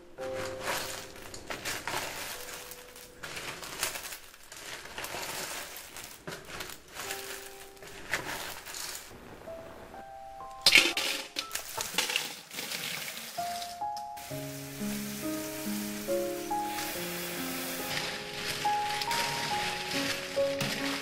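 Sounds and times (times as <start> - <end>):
shells clattering in metal pot: 0.2 - 9.1, 10.6 - 13.9, 16.5 - 21.0.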